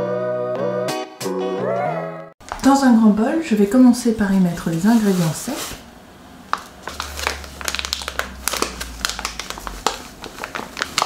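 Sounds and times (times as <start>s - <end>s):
plastic packet crinkling: 6.5s - 11.0s.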